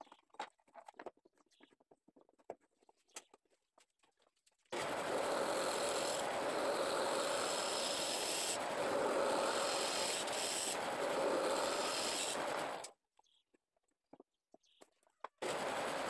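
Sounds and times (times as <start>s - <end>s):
gouge scraping spinning wood: 4.7s - 12.9s, 15.4s - 16.0s.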